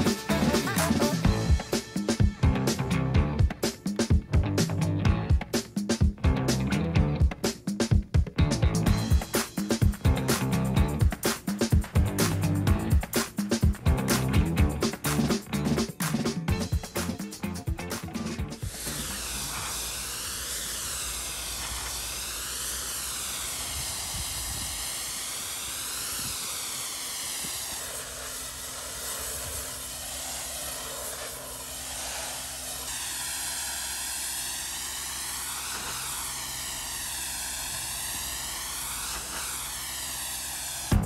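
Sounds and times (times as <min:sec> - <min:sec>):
steam jet hissing on stone: 0:00.0 - 0:02.9, 0:08.9 - 0:17.3, 0:18.6 - 0:41.0
steady low hum: 0:17.6 - 0:41.0.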